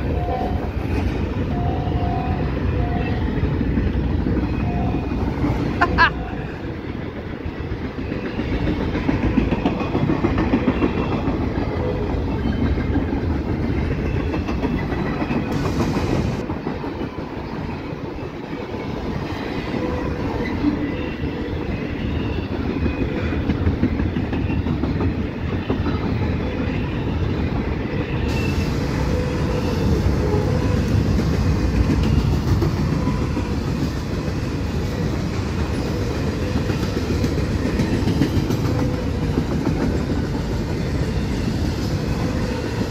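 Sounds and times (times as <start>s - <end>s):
freight train wheels clattering: 6.9s - 19.0s, 20.3s - 42.9s.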